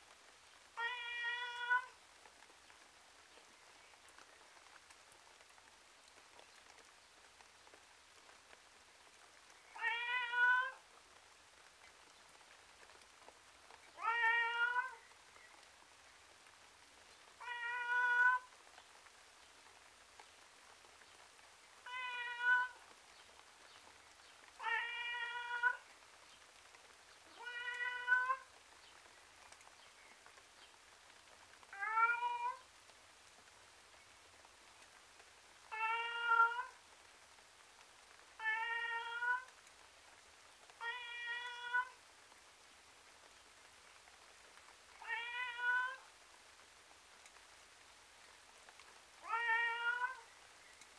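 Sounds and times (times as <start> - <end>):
tom cat meowing: 0.8 - 1.9, 9.8 - 10.8, 14.0 - 15.0, 17.4 - 18.5, 21.9 - 22.8, 24.6 - 25.8, 27.4 - 28.5, 31.7 - 32.6, 35.7 - 36.8, 38.4 - 39.5, 40.8 - 42.0, 45.0 - 46.1, 49.2 - 50.2.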